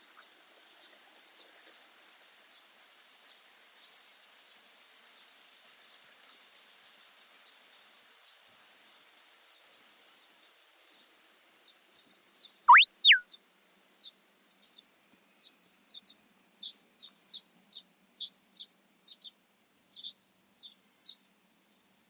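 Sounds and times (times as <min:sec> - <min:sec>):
quiet outdoor background noise: 0:00.0 - 0:22.0
small birds chirping: 0:12.7 - 0:13.2.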